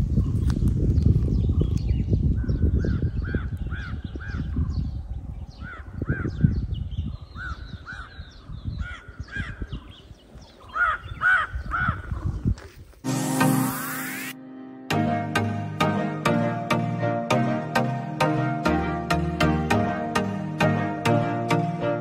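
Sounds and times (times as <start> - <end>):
crows cawing: 10.7 - 12.1.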